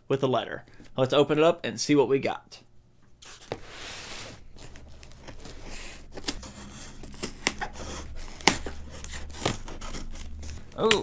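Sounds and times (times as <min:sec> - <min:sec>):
wrapping tearing and crinkling: 0:04.3 - 0:11.0
scissors slitting packing tape: 0:05.8 - 0:11.0.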